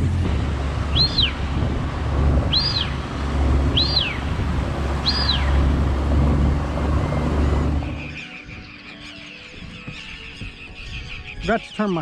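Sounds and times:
outboard motor running: 0.0s - 8.2s
bird whistled calls: 0.9s - 1.4s, 2.4s - 3.0s, 3.7s - 4.4s, 5.0s - 5.7s, 7.0s - 12.0s.

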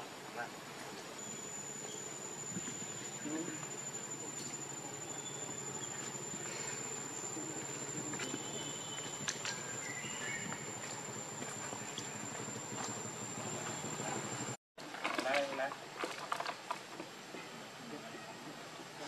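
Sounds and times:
insects droning: 0.1s - 14.6s.

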